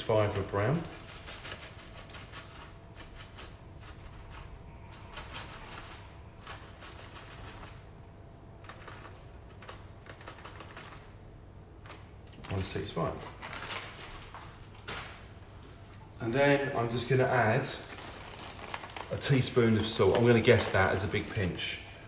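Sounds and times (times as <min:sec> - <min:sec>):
plastic bag crinkling: 0:11.8 - 0:15.3, 0:17.6 - 0:22.0.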